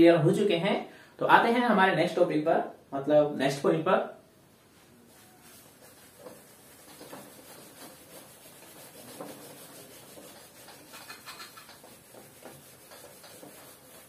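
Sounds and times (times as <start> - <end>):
cloth wiping a whiteboard: 4.6 - 14.0.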